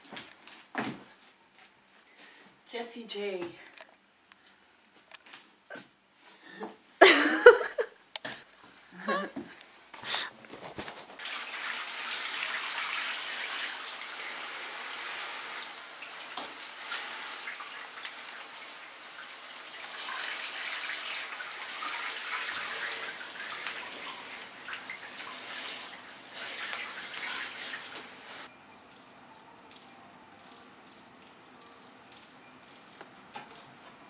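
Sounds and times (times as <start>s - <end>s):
water spraying and splashing: 11.2s - 28.5s.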